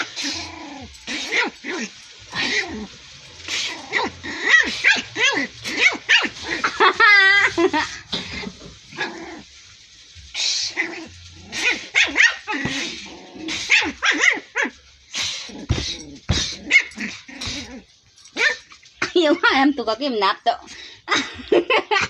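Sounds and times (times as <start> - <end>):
puppy barking and yipping: 3.6 - 6.9, 11.6 - 12.9, 13.7 - 14.8, 16.4 - 17.8, 18.4 - 18.7.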